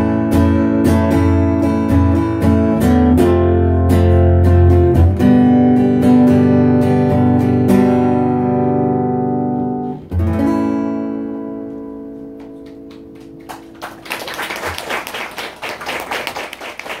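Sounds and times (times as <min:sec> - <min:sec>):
acoustic guitar strumming: 0:00.0 - 0:13.8
applause: 0:12.6 - 0:17.0.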